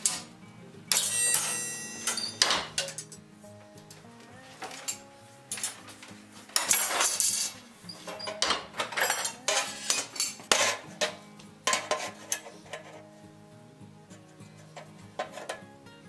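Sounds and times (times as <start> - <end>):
background music: 0.0 - 16.0
metal clanks of bar shear: 0.9 - 3.2, 6.6 - 13.0, 14.8 - 15.6.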